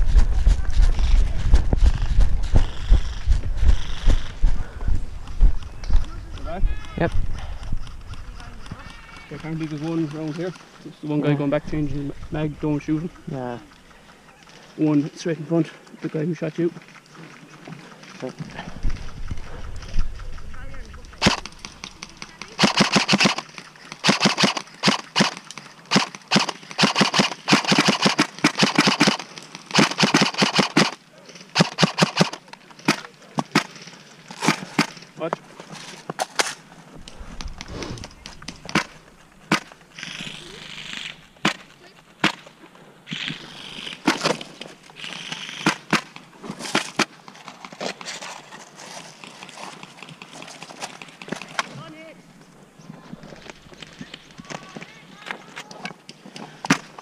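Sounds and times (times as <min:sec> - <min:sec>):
airsoft rifle shots: 0:21.2 - 0:33.8, 0:38.6 - 0:42.4, 0:45.0 - 0:47.1.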